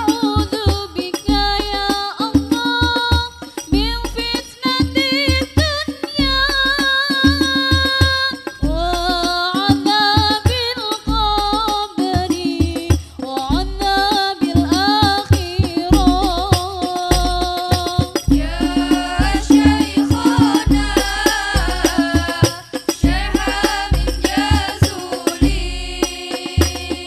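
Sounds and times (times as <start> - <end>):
frame drums playing busy rhythm: 0.0 - 27.0
person singing melodically: 13.4 - 27.0
deep low drum hits: 18.3 - 27.0.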